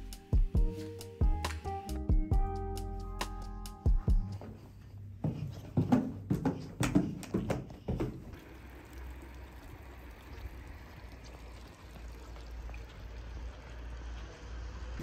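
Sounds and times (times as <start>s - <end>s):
fountain water splashing into basin: 8.4s - 14.6s.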